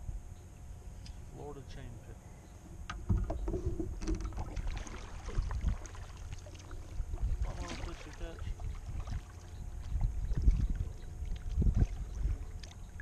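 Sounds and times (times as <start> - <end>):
wind rumble on microphone: 2.7 - 13.0
water slapping against hull: 3.1 - 13.0.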